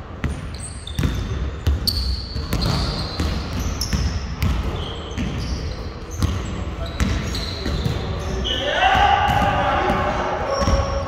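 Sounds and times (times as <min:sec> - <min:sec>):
basketball bouncing on court: 0:00.2 - 0:08.2, 0:09.0 - 0:11.0
sneakers squeaking on floor: 0:00.2 - 0:11.0.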